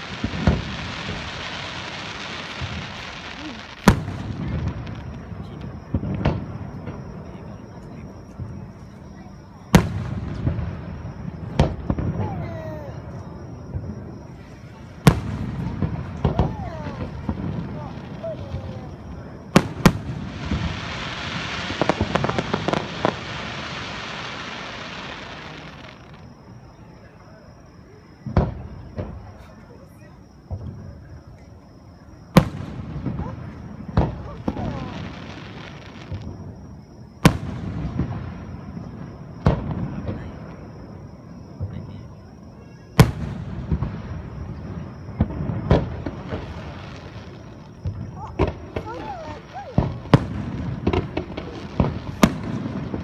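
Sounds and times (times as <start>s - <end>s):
firework hiss: 0.0s - 5.1s, 14.2s - 26.3s, 32.3s - 36.4s, 43.0s - 53.0s.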